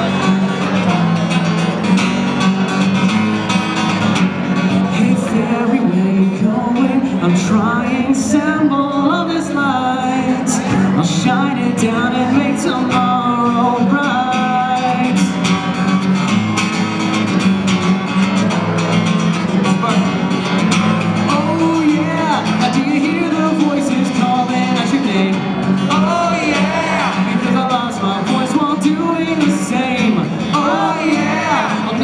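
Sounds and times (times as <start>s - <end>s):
strummed acoustic guitar: 0.0s - 32.0s
man singing: 4.7s - 15.8s, 19.5s - 20.3s, 21.2s - 32.0s.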